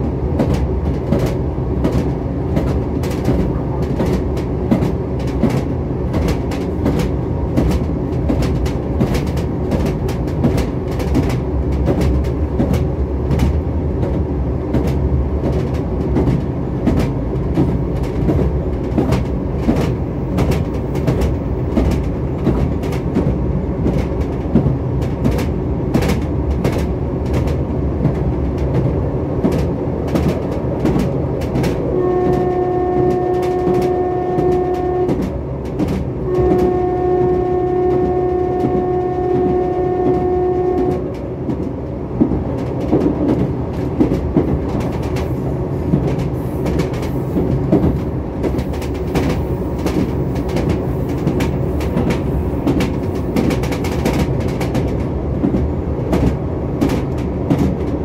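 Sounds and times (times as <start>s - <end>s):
train rumble inside carriage: 0.0s - 58.0s
wheels clicking over rail joints: 0.4s - 36.8s, 37.8s - 58.0s
steady horn note: 31.9s - 35.2s, 36.3s - 41.0s.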